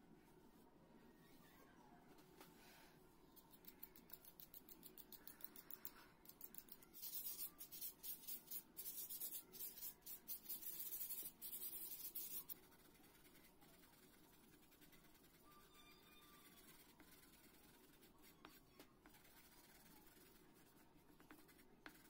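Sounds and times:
sponge rubbing on paper: 0:07.0 - 0:15.5, 0:16.4 - 0:22.0.

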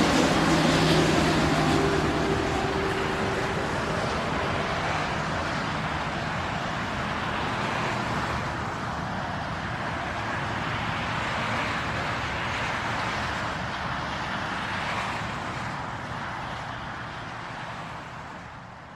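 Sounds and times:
jet engine rushing: 0:00.0 - 0:08.4.

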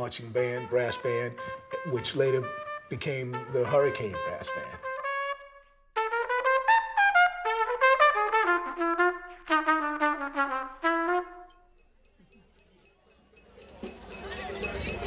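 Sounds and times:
trumpet playing: 0:00.0 - 0:11.8.

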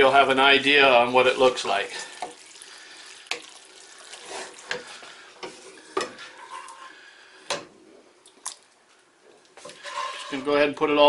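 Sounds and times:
wet stirring of spaghetti: 0:00.0 - 0:07.7, 0:09.4 - 0:10.5.

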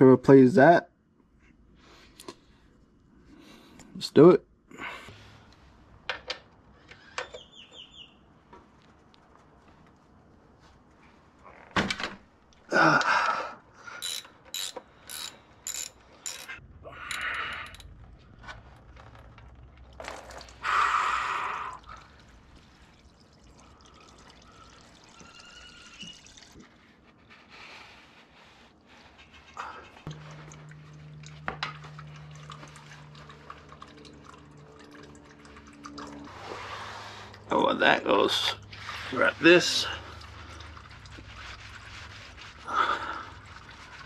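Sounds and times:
ratchet wrench clicking: 0:14.0 - 0:17.8.

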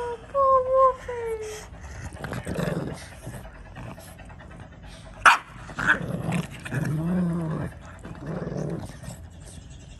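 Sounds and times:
dog growling: 0:01.6 - 0:09.9
dog barking: 0:05.2 - 0:05.6
dog yapping: 0:05.2 - 0:06.0.

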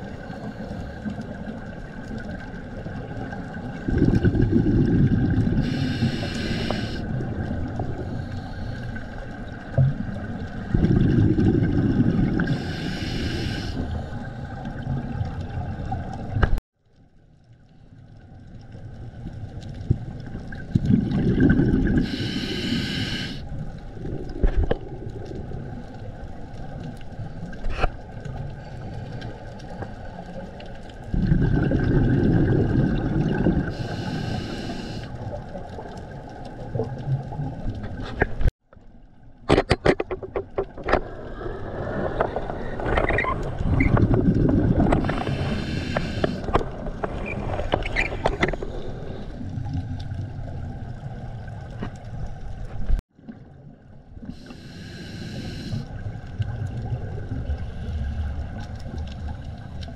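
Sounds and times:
underwater bubbling exhalation: 0:01.3 - 0:08.3, 0:09.6 - 0:16.3, 0:20.4 - 0:25.8, 0:31.0 - 0:38.1, 0:41.0 - 0:51.5
regulator hiss: 0:05.6 - 0:07.0, 0:12.5 - 0:14.0, 0:22.0 - 0:23.4, 0:33.8 - 0:35.1, 0:45.1 - 0:46.5, 0:54.4 - 0:55.9.

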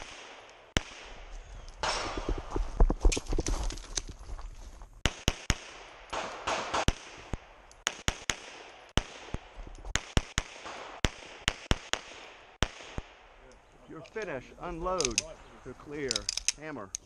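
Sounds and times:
pistol shots: 0:00.0 - 0:02.4, 0:05.0 - 0:13.4.

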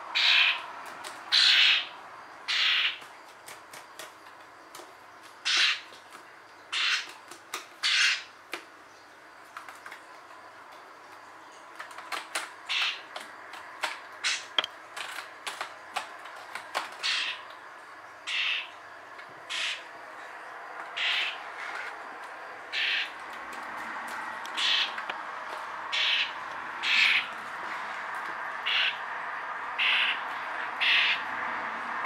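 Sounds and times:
young bird harsh calls: 0:00.2 - 0:00.6, 0:01.3 - 0:01.9, 0:02.5 - 0:03.0, 0:05.4 - 0:05.9, 0:06.7 - 0:07.1, 0:07.8 - 0:08.3, 0:12.7 - 0:13.0, 0:17.0 - 0:17.4, 0:18.3 - 0:18.8, 0:19.5 - 0:19.9, 0:21.0 - 0:21.4, 0:22.7 - 0:23.2, 0:24.5 - 0:25.1, 0:25.9 - 0:27.3, 0:28.6 - 0:29.0, 0:29.8 - 0:31.2
bird tapping on keyboard: 0:11.8 - 0:14.0, 0:14.6 - 0:17.0.

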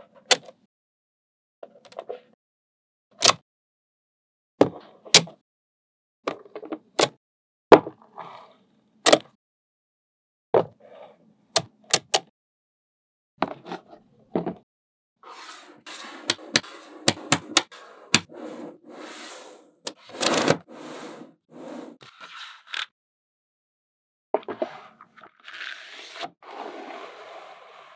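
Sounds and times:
balls scraping and rolling: 0:15.2 - 0:22.9, 0:24.4 - 0:27.9.

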